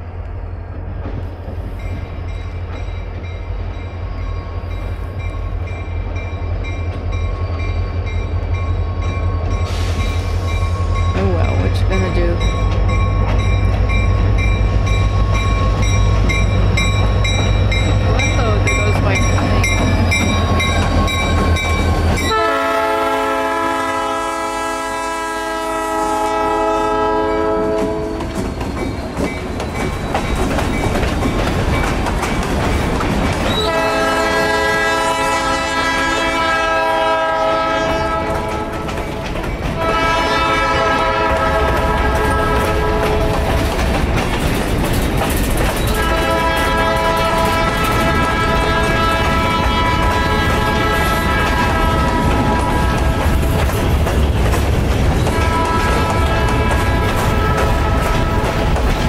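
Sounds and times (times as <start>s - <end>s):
diesel locomotives rumbling: 0.0s - 59.0s
train wheels clacking on rails: 0.6s - 59.0s
train air horn blasts: 22.2s - 28.2s, 33.5s - 38.8s, 39.8s - 43.4s, 45.9s - 53.3s, 55.3s - 58.5s.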